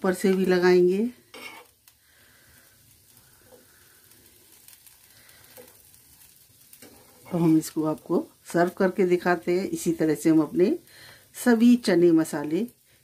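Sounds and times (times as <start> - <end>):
bun sizzling on hot griddle: 0.0 - 13.0
steel spoon scraping: 1.3 - 1.8.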